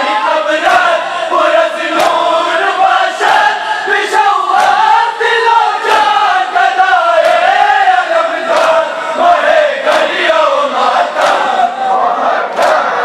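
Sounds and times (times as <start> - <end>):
crowd of men chanting: 0.0 - 13.0
hands slapping bare chests: 8.5 - 8.8.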